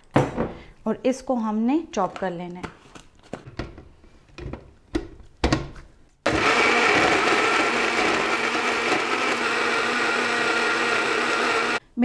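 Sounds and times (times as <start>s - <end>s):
blender motor grinding: 6.3s - 11.8s.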